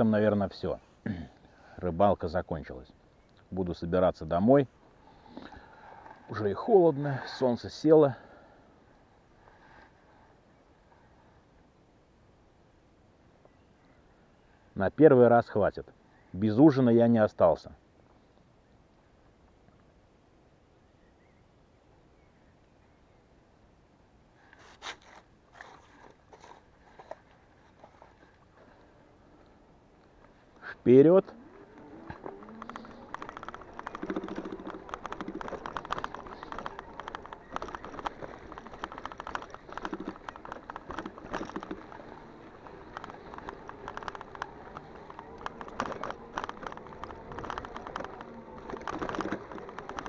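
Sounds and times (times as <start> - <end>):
clicks and crunches of handling: 31.3 - 50.0.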